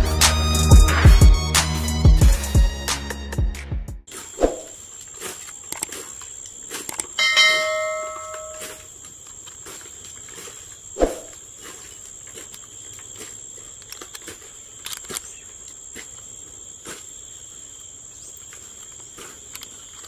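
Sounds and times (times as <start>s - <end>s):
insects droning: 4.1s - 20.0s.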